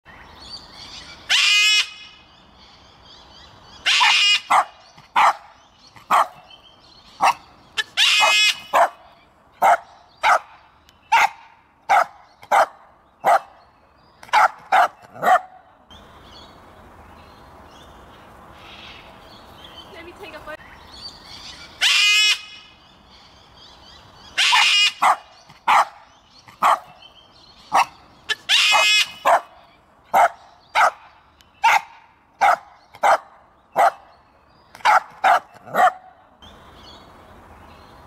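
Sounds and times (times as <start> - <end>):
cockatoo screeching: 1.3 - 2.1, 3.8 - 4.7, 7.8 - 8.9, 21.8 - 22.6, 24.4 - 25.2, 28.3 - 29.4
cockatoo squawking: 1.3 - 2.1, 3.8 - 5.4, 7.1 - 9.0, 21.8 - 22.6, 24.4 - 26.9, 27.7 - 29.5.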